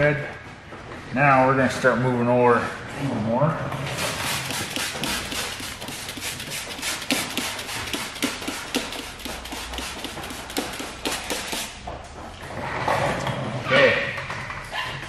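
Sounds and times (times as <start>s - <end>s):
spray bottle squirts: 4.0s - 11.8s.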